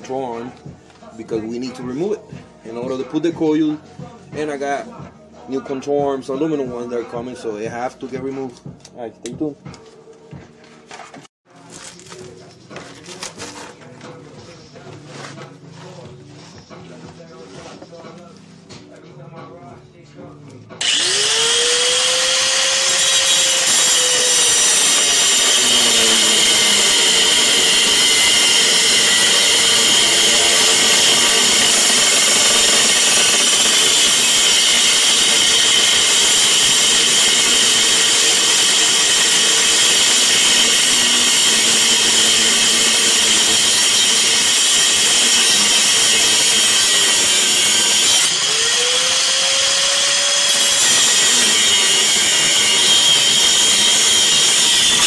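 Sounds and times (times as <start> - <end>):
angle grinder cutting metal: 20.8 - 55.0.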